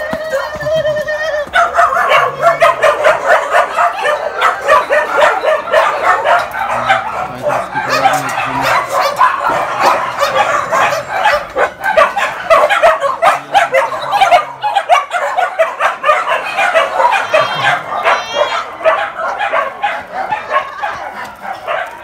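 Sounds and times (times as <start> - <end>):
many dogs barking: 0.0 - 22.0.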